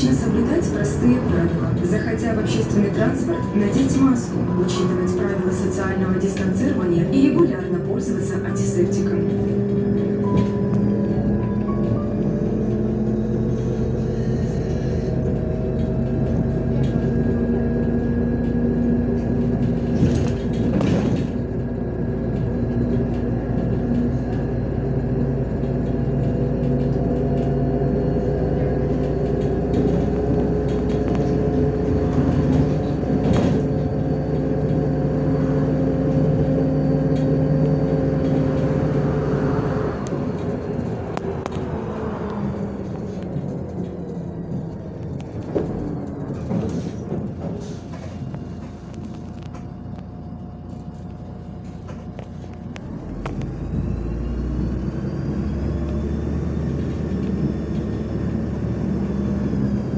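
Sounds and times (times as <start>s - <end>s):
bus diesel engine drone: 0.0s - 59.9s
road noise: 0.0s - 59.9s
bus body knocks and rattles: 15.3s - 35.0s, 42.8s - 49.9s.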